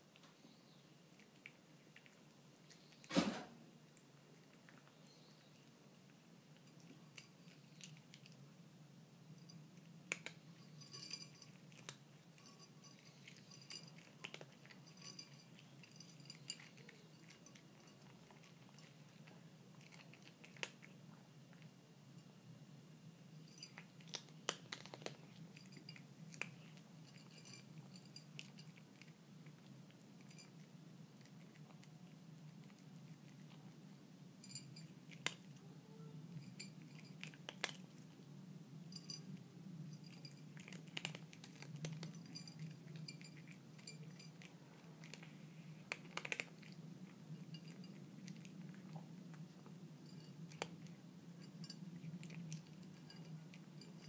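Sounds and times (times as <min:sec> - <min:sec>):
cat crunching dry kibble: 0:11.5 - 0:21.7, 0:23.7 - 0:34.0, 0:34.7 - 0:35.6, 0:36.8 - 0:38.2, 0:40.0 - 0:54.0.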